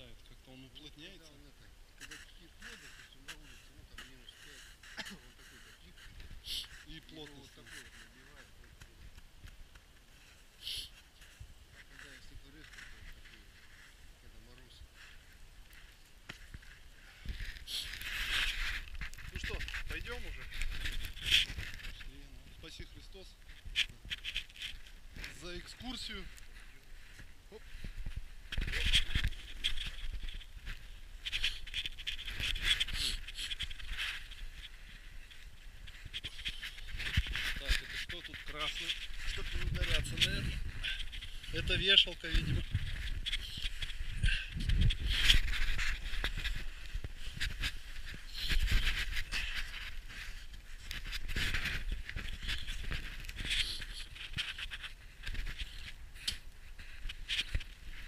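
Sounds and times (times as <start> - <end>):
footsteps crunching in snow: 11.2 - 22.9, 23.6 - 56.0.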